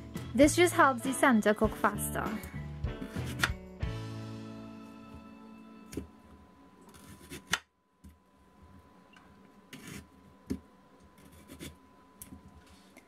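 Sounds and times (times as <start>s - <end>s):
knife scraping tough skin: 6.9s - 7.6s, 9.7s - 10.1s, 11.2s - 11.8s.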